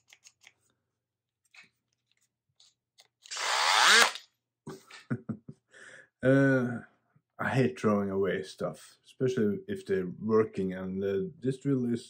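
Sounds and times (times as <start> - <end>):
cordless drill motor whining: 3.3 - 4.2.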